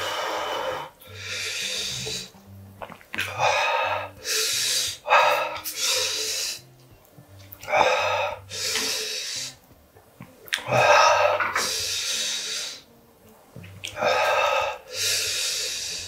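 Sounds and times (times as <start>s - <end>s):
man breathing hard: 0.0s - 2.3s, 7.6s - 9.6s, 14.0s - 16.0s
soft background music: 0.0s - 16.0s.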